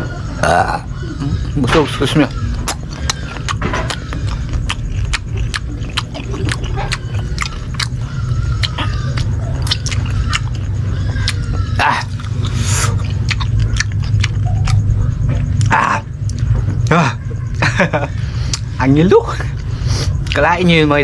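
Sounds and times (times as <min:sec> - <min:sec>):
person chewing crisp mango: 0:02.4 - 0:16.9, 0:18.1 - 0:18.9, 0:19.5 - 0:20.5.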